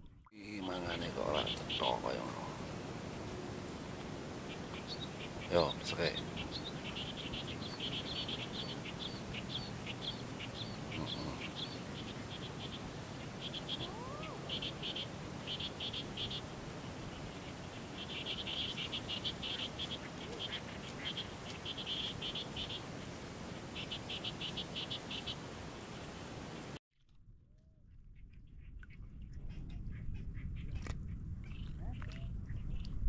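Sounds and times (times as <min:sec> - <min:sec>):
background hiss: 0:00.4 - 0:26.8
frogs calling: 0:00.6 - 0:02.9, 0:03.8 - 0:25.5.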